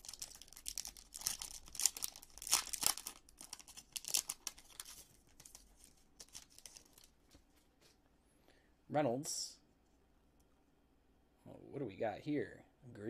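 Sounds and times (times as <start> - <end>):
foil wrapper tearing and crinkling: 0.0 - 7.1.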